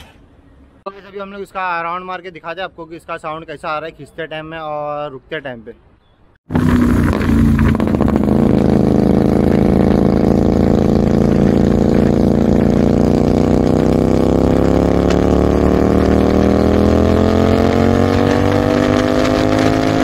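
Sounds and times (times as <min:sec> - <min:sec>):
motorcycle engine revving: 0:06.5 - 0:20.0.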